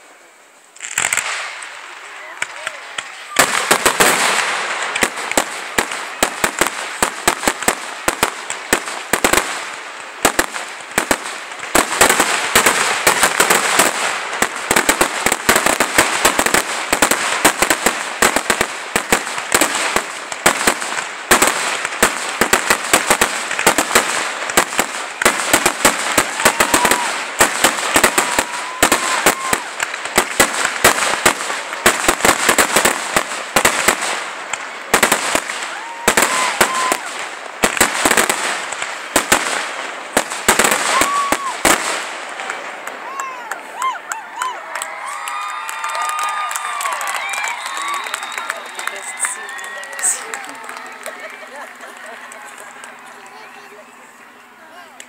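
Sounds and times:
firework crackling: 0.0s - 55.0s
firework shells bursting: 0.8s - 1.8s.

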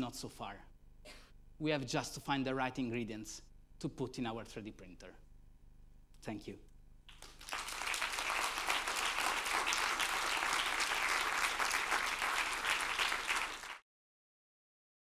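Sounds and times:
audience applauding: 7.1s - 13.8s.

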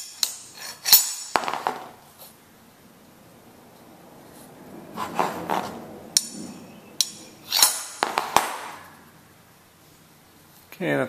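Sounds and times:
handling and scraping noise: 0.0s - 2.4s, 3.7s - 9.0s.

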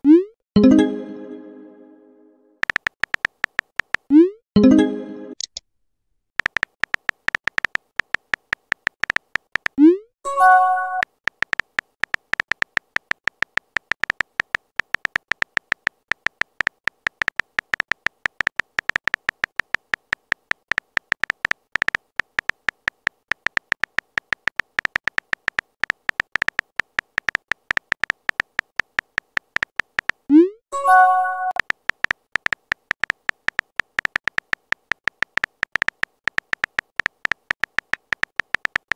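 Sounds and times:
keyboard tap clicks: 2.6s - 4.1s, 6.4s - 9.8s, 11.0s - 30.2s, 31.5s - 38.9s.

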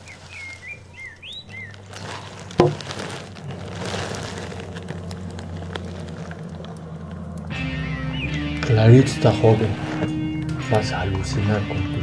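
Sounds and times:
crackling rush of noise: 0.0s - 11.0s
low hum: 2.7s - 11.1s.

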